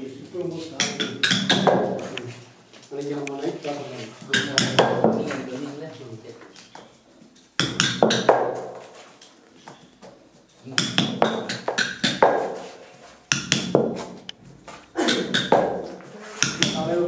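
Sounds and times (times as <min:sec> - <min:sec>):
hammer tapping metal rod: 0:07.6 - 0:08.5, 0:10.8 - 0:12.3, 0:13.3 - 0:13.8, 0:16.4 - 0:16.9.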